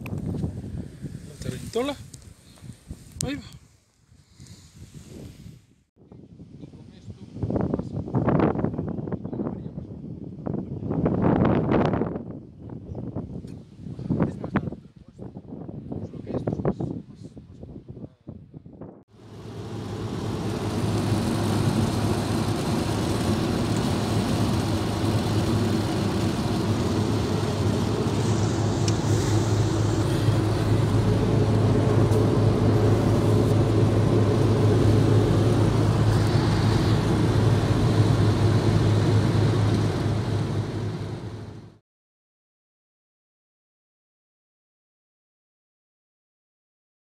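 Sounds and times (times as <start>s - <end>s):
car interior road noise: 19.2s - 41.7s.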